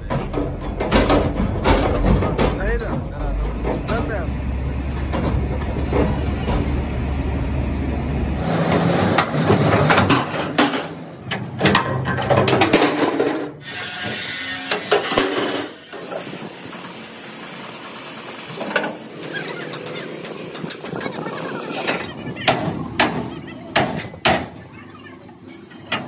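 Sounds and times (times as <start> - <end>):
low engine hum: 2.2 - 10.2
truck body cracking and crashing: 8.6 - 13.6.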